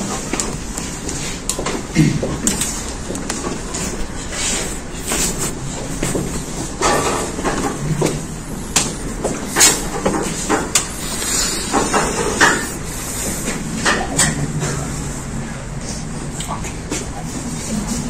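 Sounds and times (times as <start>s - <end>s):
room hiss: 8.3s - 14.0s.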